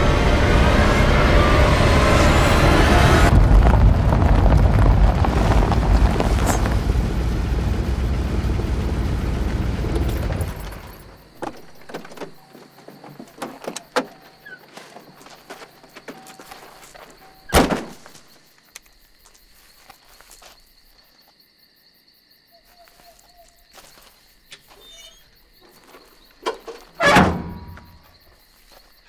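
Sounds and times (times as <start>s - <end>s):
truck door shutting: 9.7s - 12.4s, 26.4s - 28.0s
canopy hatch clunk: 10.3s - 14.3s, 26.4s - 28.1s
faint footsteps: 18.0s - 21.4s, 22.7s - 25.0s.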